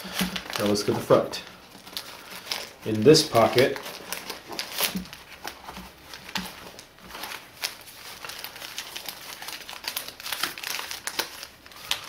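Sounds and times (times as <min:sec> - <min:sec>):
packet crinkling and rustling: 0:00.0 - 0:12.0.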